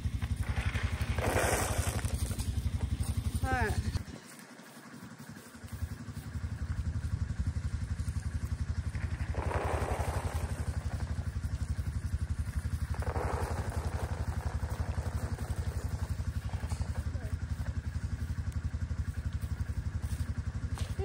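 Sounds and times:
small engine running: 0:00.0 - 0:21.0
feed poured from bucket: 0:00.4 - 0:02.5, 0:09.0 - 0:11.3, 0:12.8 - 0:16.9.

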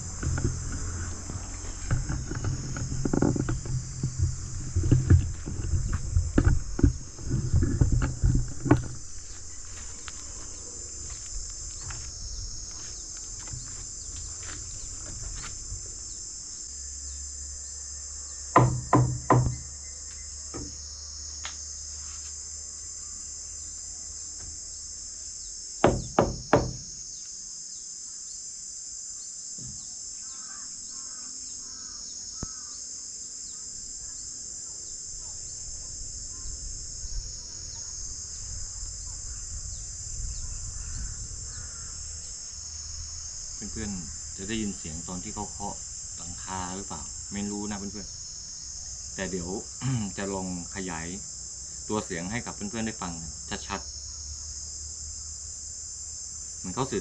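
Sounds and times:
crickets chirping: 0:00.0 - 0:57.0
sharp knocks on a roof: 0:18.6 - 0:19.6, 0:25.8 - 0:26.8.

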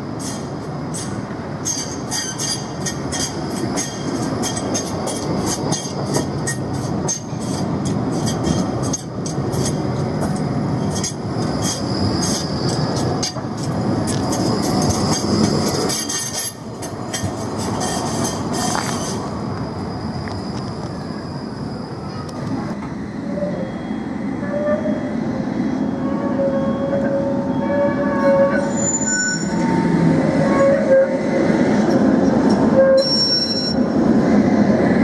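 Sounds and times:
tram wheels rumbling on rail: 0:00.0 - 0:35.0
high wheel squeal: 0:10.6 - 0:31.7, 0:32.5 - 0:33.8.

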